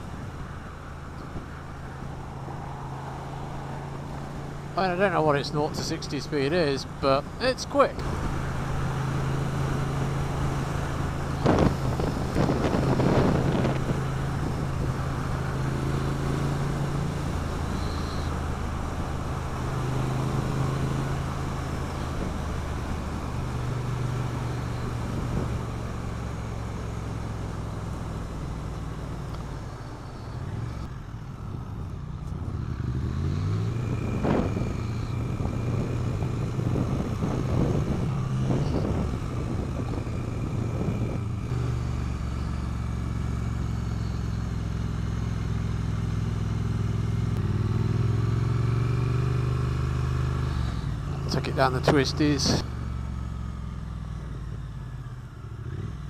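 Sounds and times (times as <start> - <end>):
motorcycle engine: 0.0 - 56.0
wind noise: 11.2 - 15.6, 24.8 - 25.8, 31.4 - 41.6.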